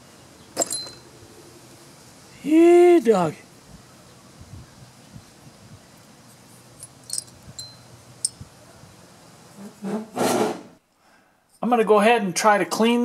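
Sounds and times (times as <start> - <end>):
light high metal clicks: 6.8 - 8.4.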